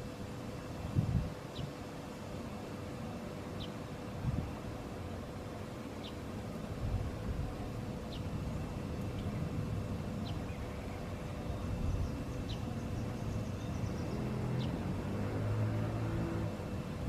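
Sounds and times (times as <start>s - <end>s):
road traffic rumble: 0.0s - 17.0s
bird chirps: 10.2s - 14.8s
vehicle engine: 12.5s - 17.0s.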